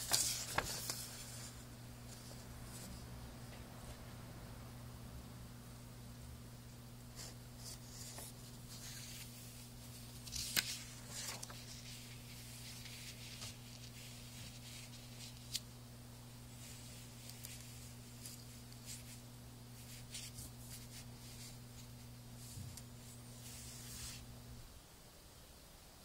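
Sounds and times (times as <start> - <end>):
paper rustling: 0.0 - 3.0, 7.2 - 15.7, 16.5 - 19.2, 19.8 - 24.3
faint low hum: 0.0 - 26.0.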